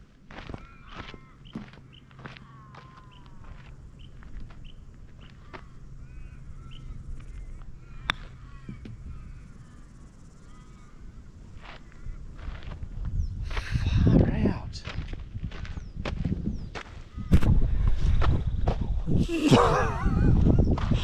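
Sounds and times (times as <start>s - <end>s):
birds chirping: 0.0s - 14.6s, 15.5s - 18.6s
golf club striking ball: 8.0s - 9.0s.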